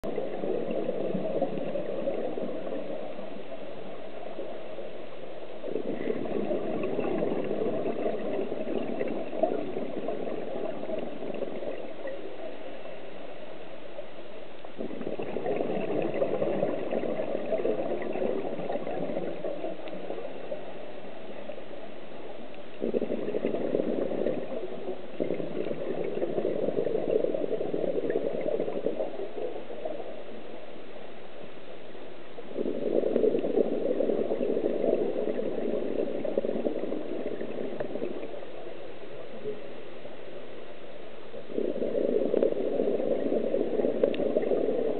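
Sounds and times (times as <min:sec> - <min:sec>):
underwater exhaled air bubbling: 0:00.0 - 0:31.2, 0:32.2 - 0:44.9.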